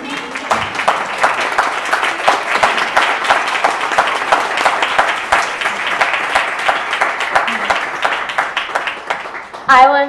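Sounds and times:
audience applauding: 0:00.0 - 0:09.8.

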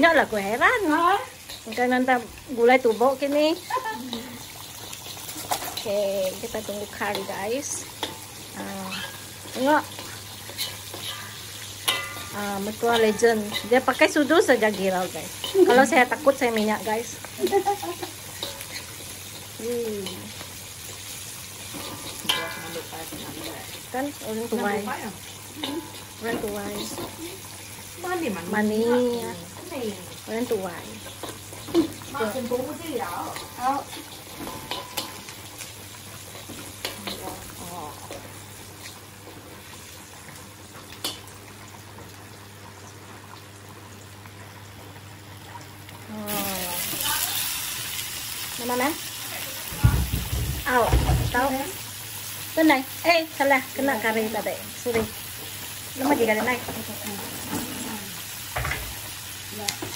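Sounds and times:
food sizzling in hot oil: 0:00.0 - 0:59.9
spatula tapping a wok: 0:11.8 - 0:13.1.

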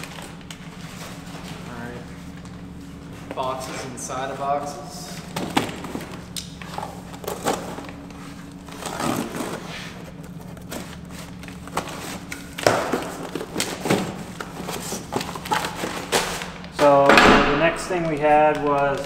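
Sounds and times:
cardboard boxes rustling and scraping: 0:05.1 - 0:12.3, 0:12.9 - 0:16.4.

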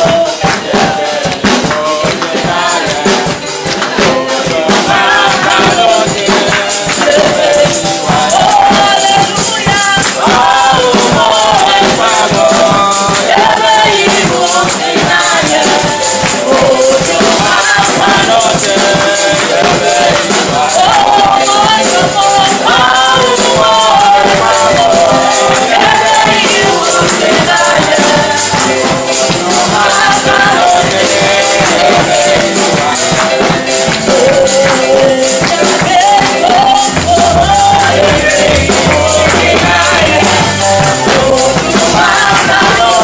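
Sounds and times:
live church music: 0:00.0 - 0:43.0
shaker percussion: 0:00.0 - 0:43.0
woman singing into microphone: 0:04.0 - 0:32.1, 0:32.8 - 0:43.0
bass line: 0:36.0 - 0:43.0.

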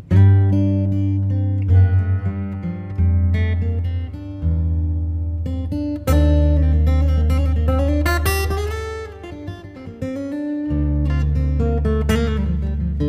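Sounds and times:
steady bass: 0:00.0 - 0:08.8
guitar: 0:00.0 - 0:13.0.

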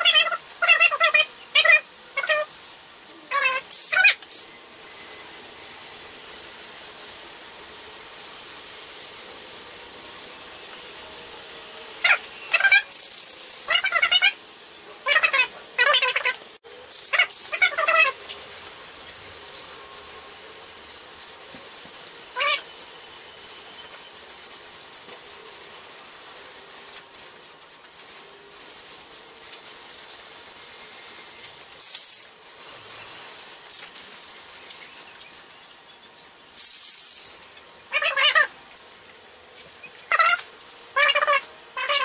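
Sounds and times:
spray paint can hissing: 0:00.0 - 0:14.4, 0:15.1 - 0:35.6, 0:36.5 - 0:39.0, 0:39.6 - 0:42.0
high-pitched wavering cries: 0:03.2 - 0:04.2, 0:17.1 - 0:18.2, 0:22.3 - 0:22.7, 0:37.9 - 0:38.6, 0:40.0 - 0:42.0.

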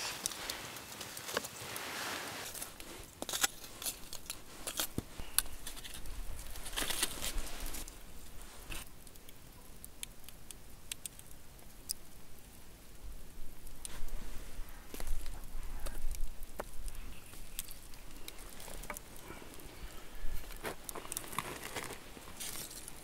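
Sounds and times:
campfire crackling: 0:00.0 - 0:23.0
fire pops and snaps: 0:00.0 - 0:23.0.

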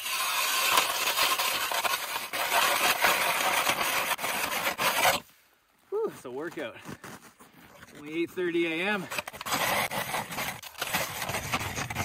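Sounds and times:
ice auger grinding into ice: 0:00.0 - 0:05.2, 0:08.8 - 0:12.0.

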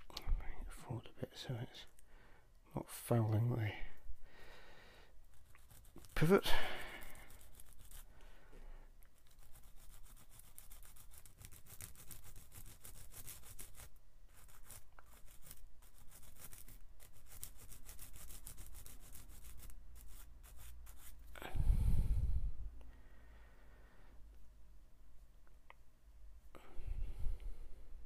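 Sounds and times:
sanding stick rasping: 0:05.3 - 0:08.1, 0:09.2 - 0:21.2.

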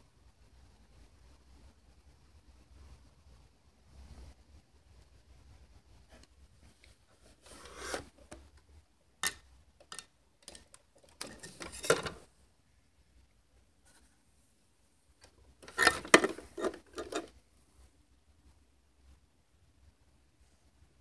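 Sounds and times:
rubbing and scraping handling noise: 0:05.4 - 0:12.4, 0:13.8 - 0:18.0.

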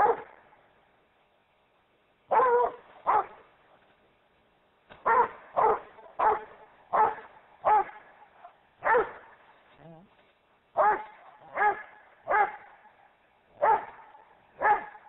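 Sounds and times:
dog barking: 0:00.0 - 0:00.4, 0:02.3 - 0:03.4, 0:05.0 - 0:09.4, 0:10.8 - 0:15.0.

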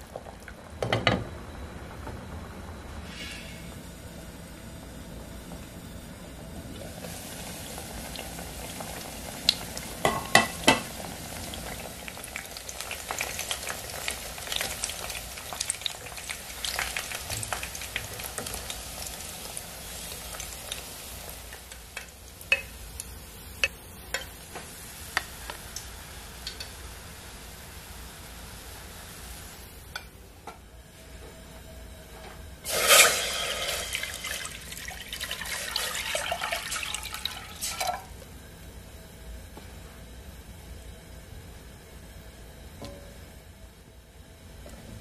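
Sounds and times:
meat sizzling in hot oil: 0:06.8 - 0:29.2, 0:32.6 - 0:38.0.

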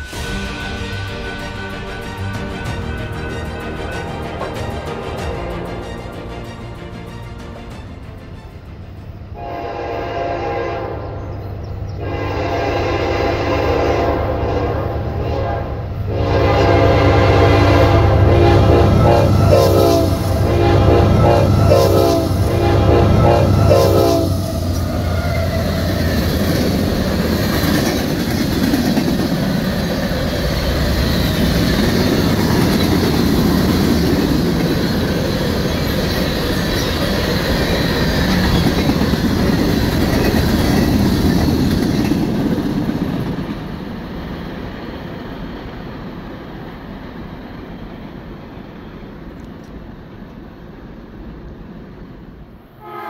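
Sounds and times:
locomotive horn: 0:00.0 - 0:11.3, 0:12.0 - 0:26.2, 0:52.8 - 0:53.0
train wheels clacking on rails: 0:18.6 - 0:46.7.

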